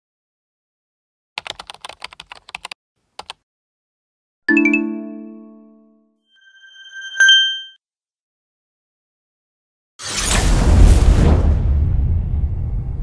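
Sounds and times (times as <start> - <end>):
keyboard key clicks: 1.4 - 3.4.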